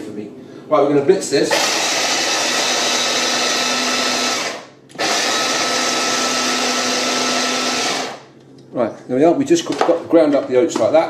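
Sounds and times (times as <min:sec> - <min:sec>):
electric chopper grinding oats: 0:01.5 - 0:08.3.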